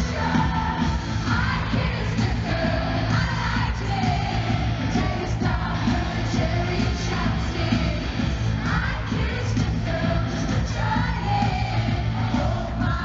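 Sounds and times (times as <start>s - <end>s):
loud bass-heavy backing music: 0.0s - 13.0s
woman singing lead vocal: 0.0s - 13.0s.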